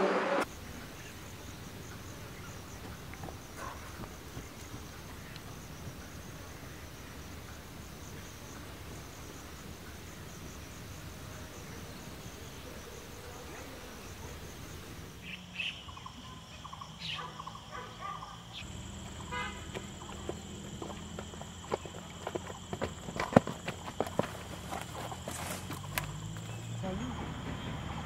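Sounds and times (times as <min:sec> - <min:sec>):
steady high drone: 0:00.0 - 0:00.8
insect chirping calls: 0:00.4 - 0:28.0
insects chirring: 0:00.4 - 0:28.0.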